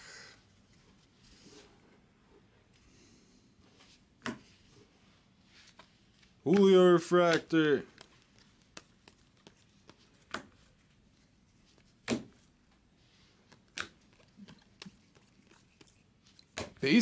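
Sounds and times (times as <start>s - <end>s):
cards sliding and clicking: 5.5s - 10.8s, 13.2s - 16.7s.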